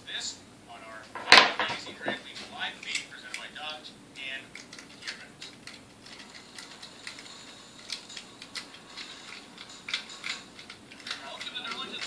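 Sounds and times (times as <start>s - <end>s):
small metal parts clicking: 4.5s - 12.0s.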